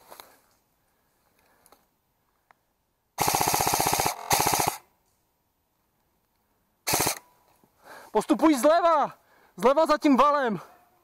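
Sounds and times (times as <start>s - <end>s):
airsoft gun full-auto bursts: 3.2s - 4.9s, 6.9s - 7.2s.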